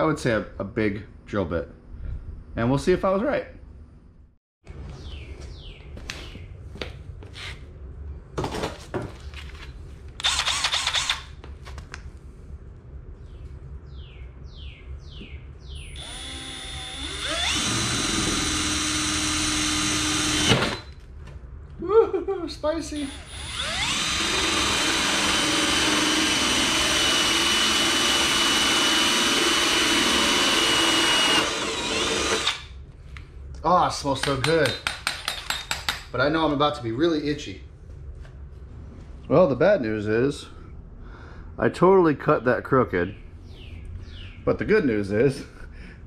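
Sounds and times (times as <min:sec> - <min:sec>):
handling knocks and rustles: 0:08.3 - 0:10.1
cordless drill whining: 0:10.2 - 0:11.2, 0:15.9 - 0:21.0, 0:23.0 - 0:32.7.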